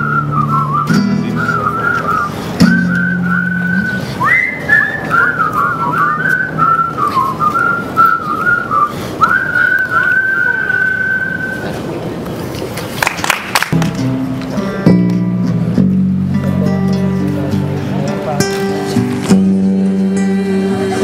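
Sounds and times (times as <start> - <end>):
person whistling a tune: 0.0 - 11.7
faint acoustic guitar: 0.0 - 12.6, 13.7 - 21.0.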